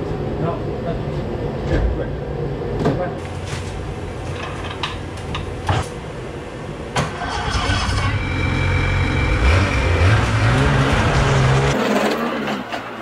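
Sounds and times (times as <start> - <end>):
snowmobile engine revving: 7.2 - 12.6.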